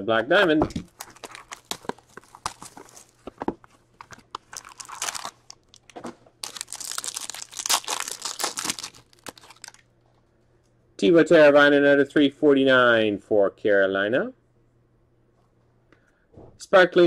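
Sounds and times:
wrapper crinkling and tearing: 0:00.9 - 0:03.3, 0:04.0 - 0:09.9
plastic wrap crackling and tearing: 0:00.9 - 0:03.4, 0:04.0 - 0:09.9.

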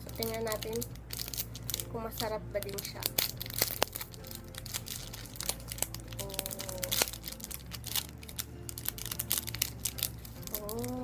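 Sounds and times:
snack wrapper being torn open: 0:00.1 - 0:01.9, 0:02.6 - 0:11.0.

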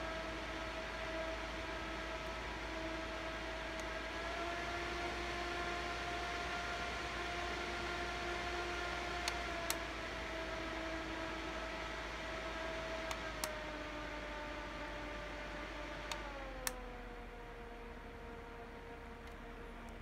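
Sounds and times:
handheld fan running: 0:00.0 - 0:20.0
fan button clicks: 0:13.0 - 0:13.6.

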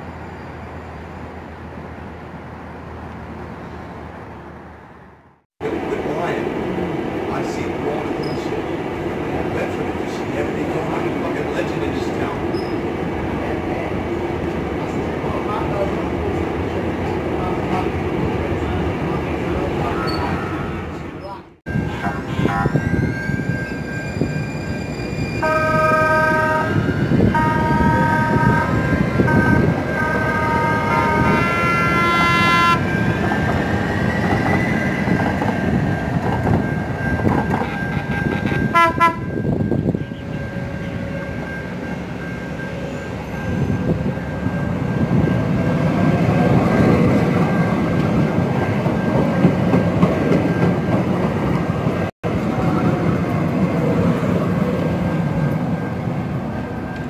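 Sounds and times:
train running over rails: 0:00.0 - 0:57.0
train horn blasts: 0:25.4 - 0:33.1, 0:38.1 - 0:41.5.

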